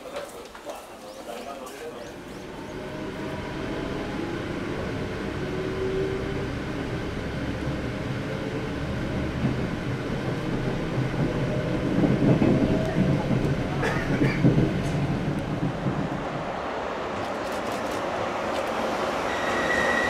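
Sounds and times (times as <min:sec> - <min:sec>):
train rumbling on rails: 0:00.0 - 0:20.0.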